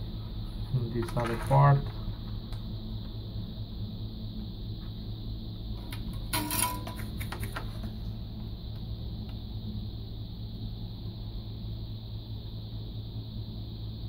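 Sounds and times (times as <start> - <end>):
steady low hum: 0.0 - 14.0
metallic scratching and clatter: 6.1 - 7.8.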